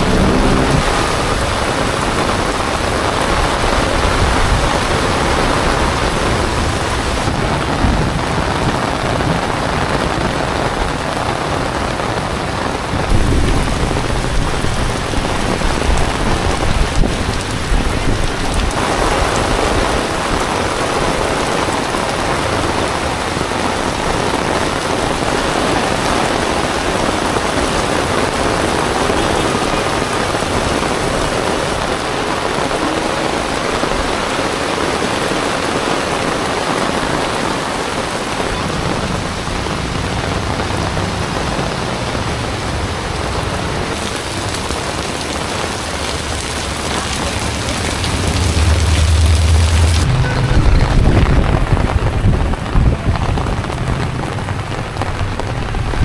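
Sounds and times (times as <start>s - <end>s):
deep rumble: 0.0s - 2.6s, 46.1s - 56.0s
heavy rain on pavement: 0.0s - 56.0s.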